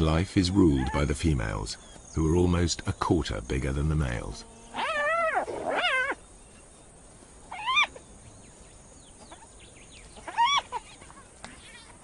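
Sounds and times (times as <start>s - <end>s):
hyena whining: 4.3s - 6.4s, 7.4s - 8.1s, 9.2s - 11.7s
faint hyena squeaks: 4.4s - 6.3s, 7.5s - 8.0s, 10.2s - 11.7s.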